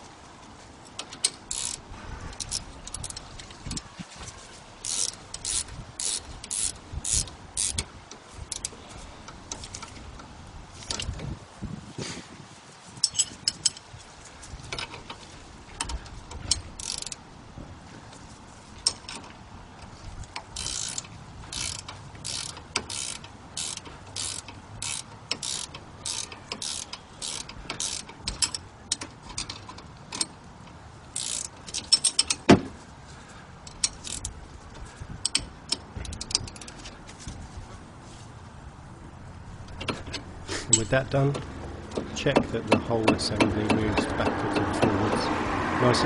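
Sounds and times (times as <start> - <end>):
ratcheting spanner clicking: 1.0 - 3.9, 4.8 - 11.3, 13.0 - 13.9, 15.8 - 17.2, 18.8 - 32.5, 33.6 - 34.4, 35.2 - 37.0, 39.6 - 45.3.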